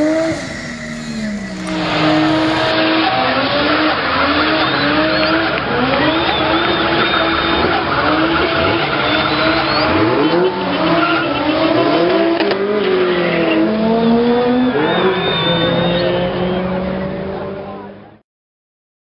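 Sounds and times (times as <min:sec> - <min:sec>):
tyres squealing: 0:00.0 - 0:13.7
engine revving hard: 0:00.0 - 0:18.0.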